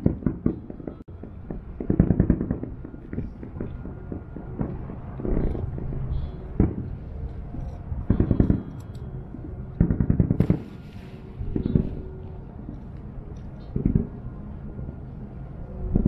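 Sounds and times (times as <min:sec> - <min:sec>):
distant fireworks booming: 0:00.0 - 0:16.0
fireworks crackling: 0:10.3 - 0:14.2
fireworks hiss: 0:10.4 - 0:12.0.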